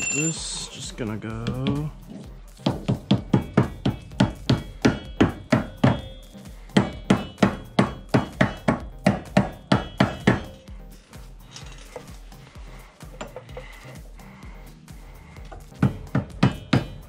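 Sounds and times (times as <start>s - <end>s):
mallet striking steel wheel hub: 2.9s - 10.6s, 15.7s - 17.0s.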